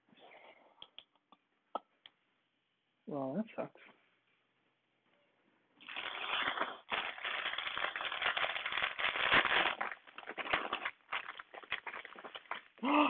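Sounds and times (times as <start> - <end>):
plastic bags crinkling: 5.8 - 13.0.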